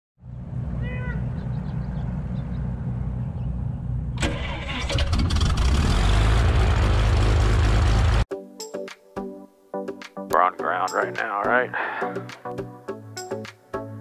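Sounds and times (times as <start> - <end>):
aircraft engine starting: 1.2 - 8.2.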